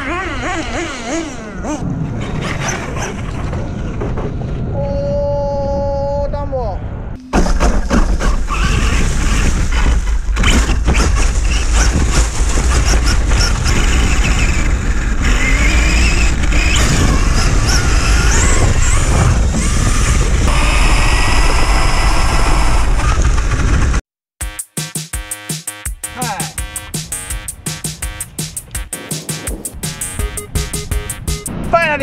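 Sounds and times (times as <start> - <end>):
wind rushing on camera: 0.6 - 24.0
electric motor whine: 13.6 - 23.3.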